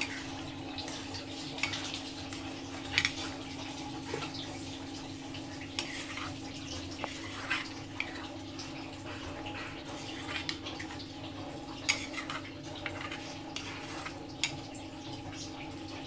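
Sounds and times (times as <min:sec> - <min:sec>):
liquid sloshing: 0:00.0 - 0:16.0
ladle scraping and clinking pan: 0:11.8 - 0:14.6.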